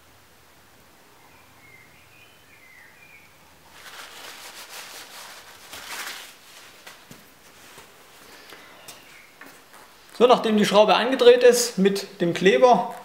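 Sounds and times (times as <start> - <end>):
faint bird chirps: 1.1 - 3.4, 8.3 - 9.9
paper towel rubbing on wood: 3.7 - 7.9.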